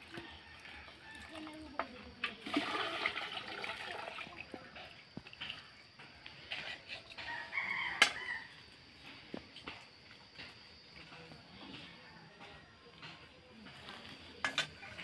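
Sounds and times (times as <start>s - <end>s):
rooster crowing: 0.0s - 1.7s, 7.2s - 8.7s.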